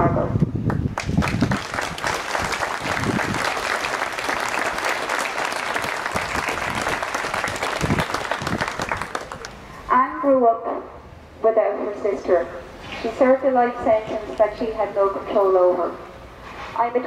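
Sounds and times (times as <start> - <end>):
crowd applauding: 1.0 - 9.6.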